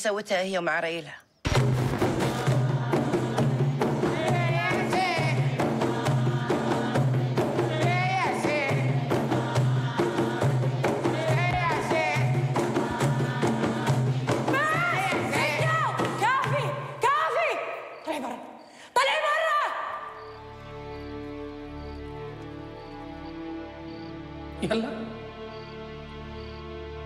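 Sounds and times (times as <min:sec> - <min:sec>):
frame drums beating: 0:01.5 - 0:17.0.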